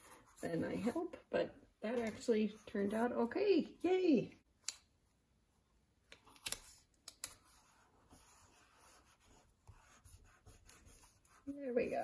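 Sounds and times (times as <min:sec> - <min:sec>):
fingers rubbing paper: 0:08.1 - 0:12.0.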